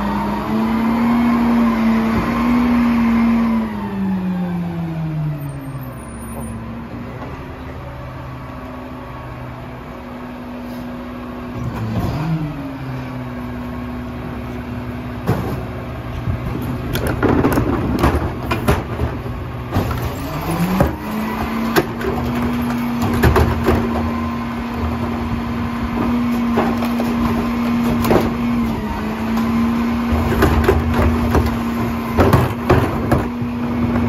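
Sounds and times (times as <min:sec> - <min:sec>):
recyclables clattering into hopper: 0:15.2 - 0:25.2, 0:25.8 - 0:34.0.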